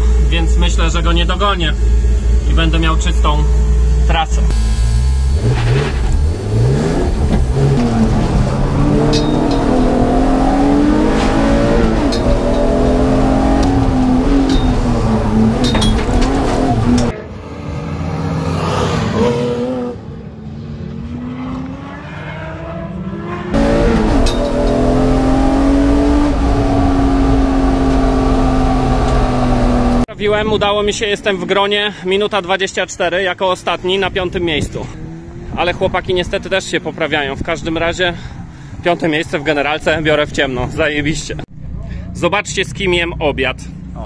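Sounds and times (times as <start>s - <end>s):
engine revving through gear changes: 0.0s - 20.2s, 20.8s - 30.1s.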